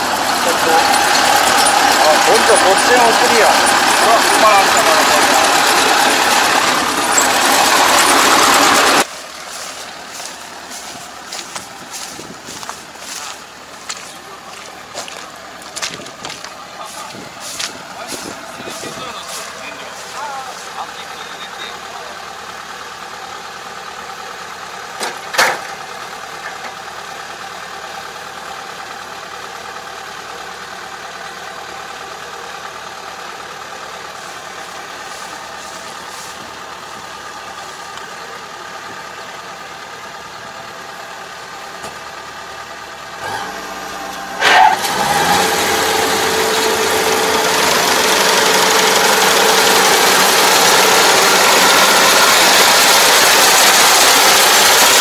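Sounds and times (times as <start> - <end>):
combine harvester engine running: 0.0 - 55.0
loud mechanical clunk: 25.0 - 25.8.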